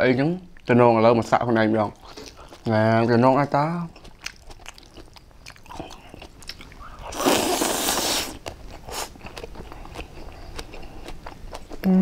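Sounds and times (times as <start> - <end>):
crunchy chewing: 1.9 - 3.1, 3.8 - 11.9
loud slurp: 6.8 - 9.1.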